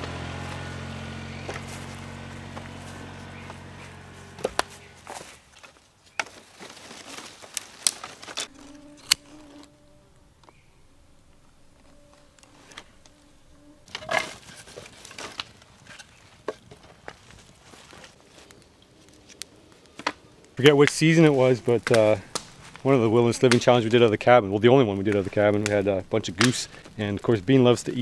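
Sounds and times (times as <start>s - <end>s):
faint steady buzz: 0.0s - 5.4s, 8.4s - 14.7s
firewood logs knocking together: 0.0s - 9.2s, 13.9s - 20.2s, 20.8s - 27.8s
wood clattering onto campfire: 0.1s - 9.7s, 13.8s - 20.2s, 20.8s - 27.8s.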